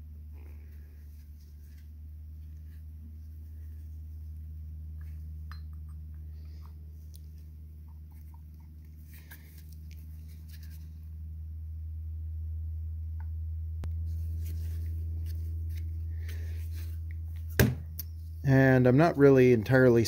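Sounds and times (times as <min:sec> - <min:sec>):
steady low hum: 0:00.0 - 0:20.0
gloved hands rustling: 0:06.3 - 0:11.2, 0:14.0 - 0:18.4.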